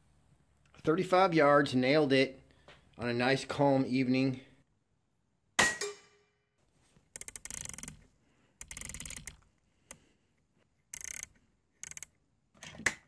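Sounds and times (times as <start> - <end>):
rapid mechanical clicking: 7.2 - 8.0, 8.6 - 10.0, 10.9 - 12.1.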